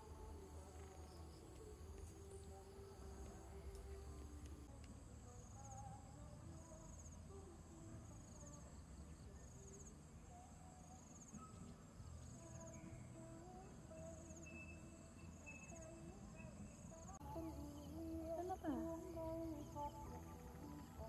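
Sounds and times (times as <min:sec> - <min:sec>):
insects chirping: 0:00.0 - 0:04.7, 0:08.0 - 0:21.0
faint low rumble: 0:00.0 - 0:11.0.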